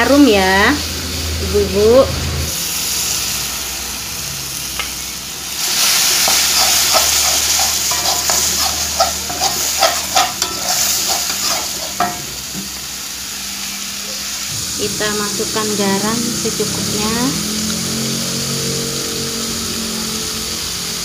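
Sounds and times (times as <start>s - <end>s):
spice paste sizzling in hot oil: 2.5s - 21.0s
metal spatula scraping a pan: 5.6s - 12.6s.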